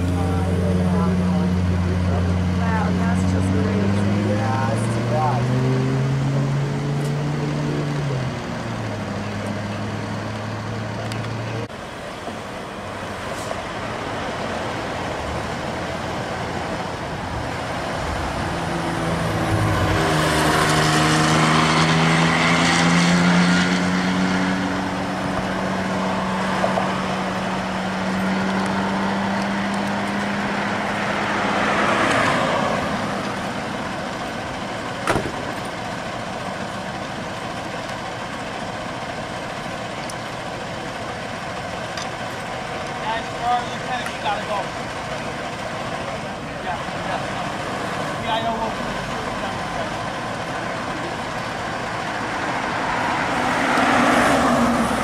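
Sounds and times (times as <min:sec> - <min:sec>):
large vehicle engine accelerating: 0:00.0 - 0:55.0
street traffic noise: 0:00.0 - 0:55.0.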